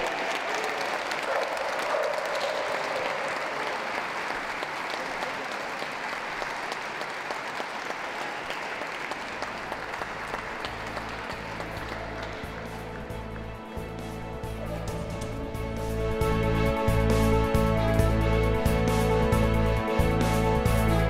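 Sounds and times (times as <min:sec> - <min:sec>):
audience applauding: 0:00.0 - 0:17.2
music: 0:09.2 - 0:21.0.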